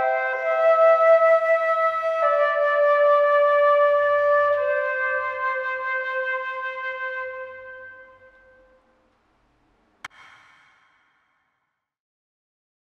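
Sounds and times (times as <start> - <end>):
flute playing held notes: 0.0 - 8.8.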